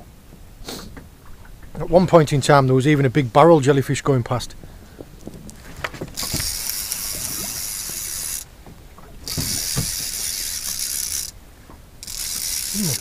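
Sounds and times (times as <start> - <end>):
fishing reel gear whirring: 6.1 - 8.5, 9.2 - 11.4, 12.0 - 13.0.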